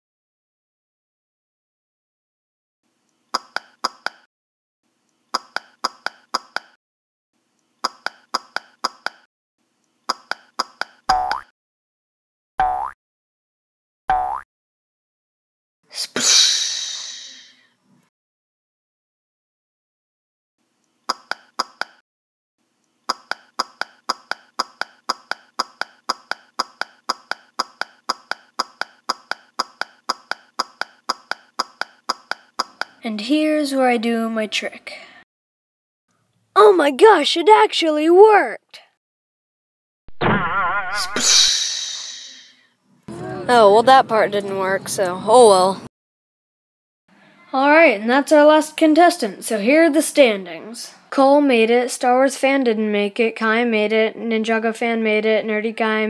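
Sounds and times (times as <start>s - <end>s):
sharp clicky footsteps: 23.1s - 33.0s
short falling pitch sound: 40.2s - 42.3s.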